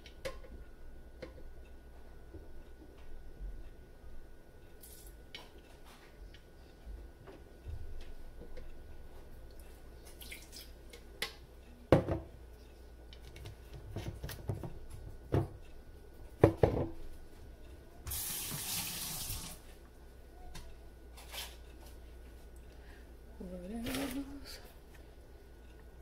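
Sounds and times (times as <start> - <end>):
water running from tap: 18.1 - 19.6.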